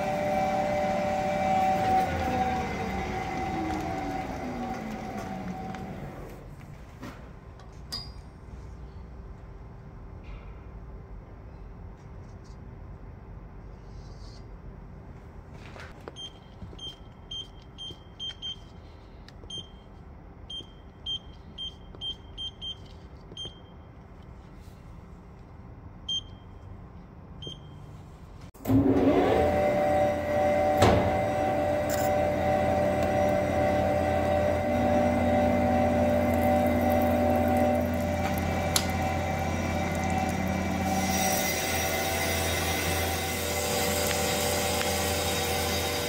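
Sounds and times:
loud machine whine: 0.0 - 6.5, 28.6 - 46.0
low hum: 29.8 - 46.0.

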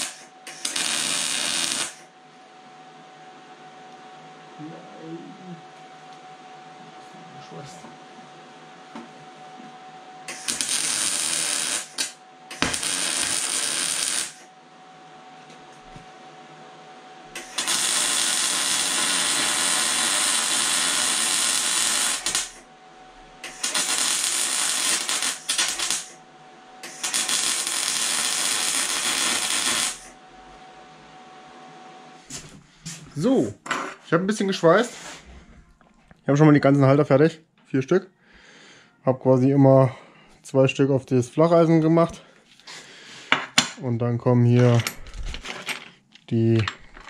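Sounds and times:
welding arc burning on steel: 0.0 - 2.1, 10.2 - 14.5, 17.3 - 22.7, 23.4 - 26.2, 26.8 - 30.2.

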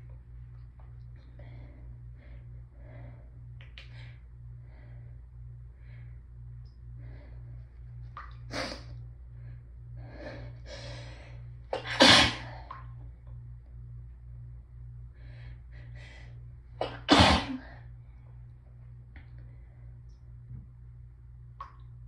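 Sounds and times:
person sneezing: 16.8 - 17.7.

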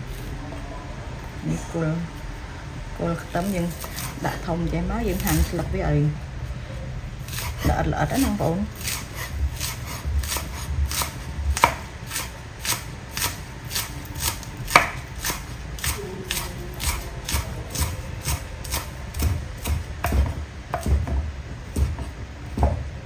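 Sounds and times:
cleaver chopping on wooden board: 8.8 - 21.2.

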